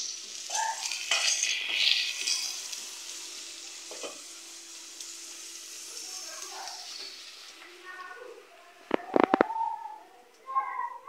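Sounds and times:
onions sizzling in oil: 0.0s - 11.0s
wooden spoon stirring and scraping: 1.0s - 2.8s.

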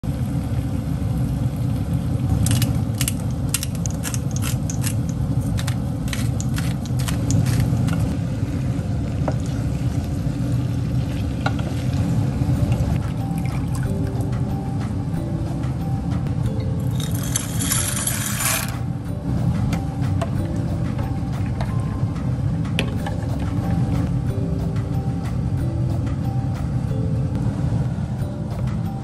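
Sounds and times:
utensil scraping a pan: 17.0s - 18.8s
steady low rumble: 18.8s - 29.0s.

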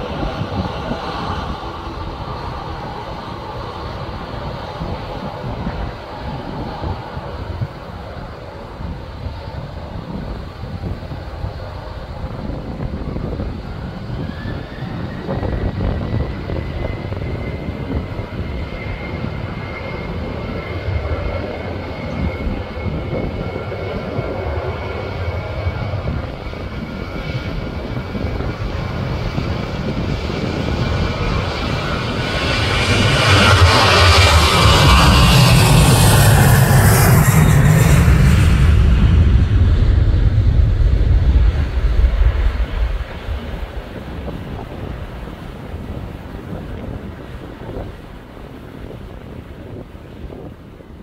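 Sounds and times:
jet engines spooling up: 26.5s - 45.8s.

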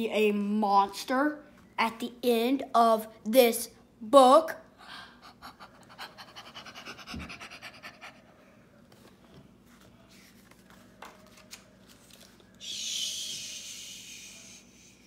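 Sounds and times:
book pages turning: 8.8s - 12.6s.

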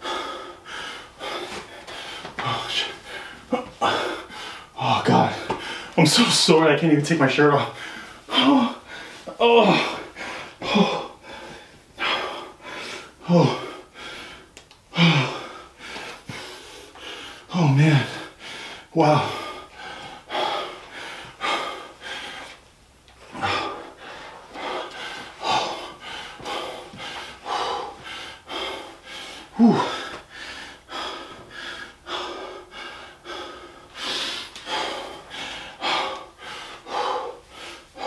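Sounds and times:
man breathing hard: 0.0s - 6.5s, 7.4s - 22.6s, 23.2s - 38.0s.

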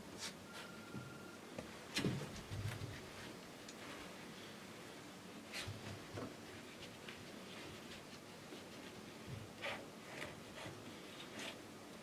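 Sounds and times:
low steady hiss: 0.0s - 12.0s
faint rustles and scrapes: 1.7s - 11.7s.

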